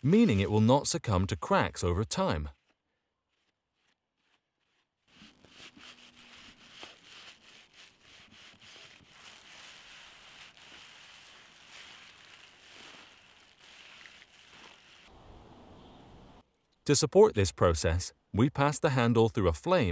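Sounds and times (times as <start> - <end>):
paper towel rubbing on wood: 0.0 - 15.1.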